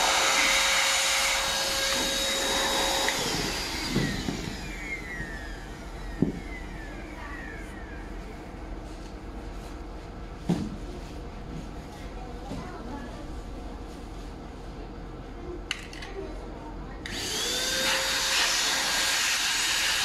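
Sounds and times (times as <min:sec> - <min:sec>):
electric air pump whining: 0:00.0 - 0:08.4, 0:17.0 - 0:20.0.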